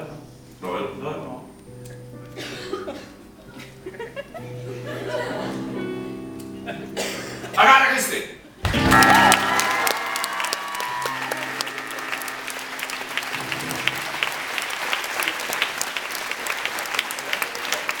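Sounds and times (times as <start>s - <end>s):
live music held chords: 1.5s - 7.6s, 8.6s - 16.6s
audience applauding: 8.6s - 18.0s.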